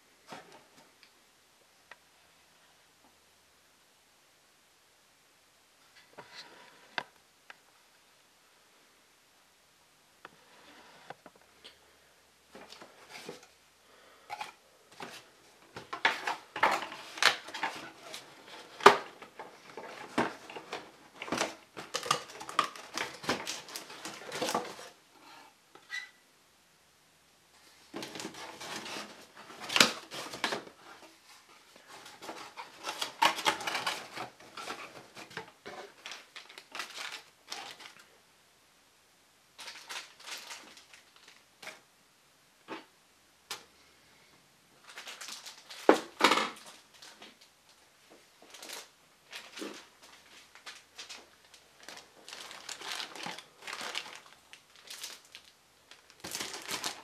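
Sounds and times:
cardboard scraping and rubbing: 28.0s - 31.2s.

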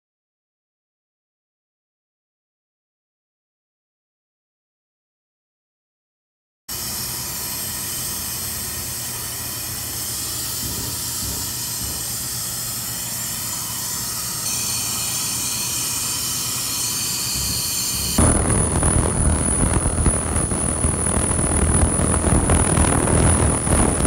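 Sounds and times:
machine hissing with high whines: 6.7s - 24.0s.

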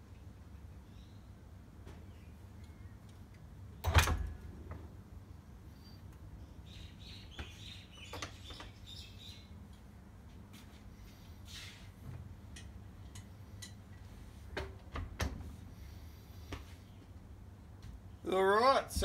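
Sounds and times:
light metallic clicks and scrapes: 11.5s - 14.3s.

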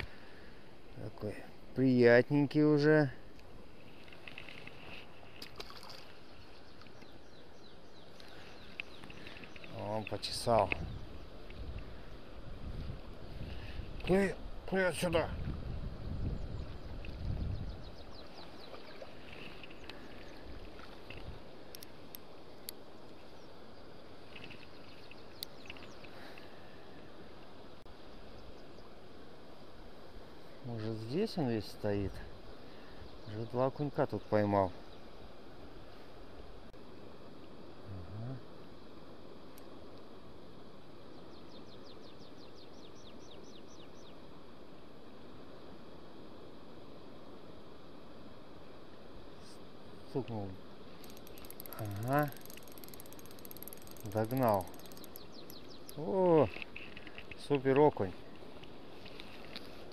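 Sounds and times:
outdoor background noise: 0.0s - 59.9s
river background noise: 0.0s - 59.9s
songbird singing: 2.3s - 12.2s, 15.8s - 27.2s, 31.0s - 35.2s, 41.0s - 44.3s, 50.2s - 58.3s
sharp clicks: 51.0s - 56.0s
bird chirps: 51.1s - 56.2s.

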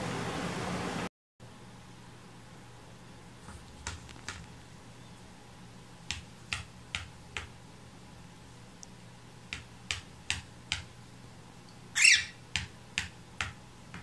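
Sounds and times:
parakeet beak tapping: 9.5s - 10.9s, 12.0s - 14.0s
bird squawk: 11.9s - 12.4s.

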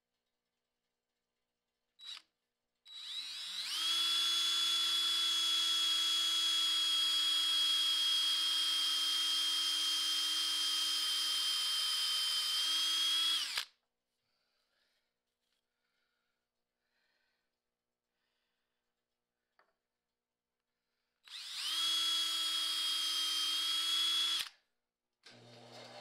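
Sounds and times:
cordless drill motor whine: 2.0s - 2.2s, 2.9s - 13.7s, 21.2s - 24.5s.

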